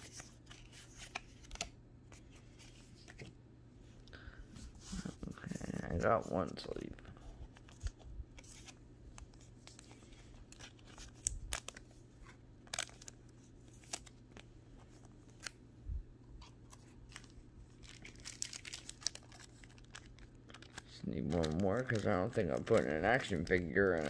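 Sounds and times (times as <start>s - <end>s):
cards and plastic sleeves rustling: 0.0s - 3.3s, 4.5s - 15.6s, 16.4s - 24.0s
low steady hum: 0.0s - 24.0s
plastic crinkling: 16.6s - 24.0s.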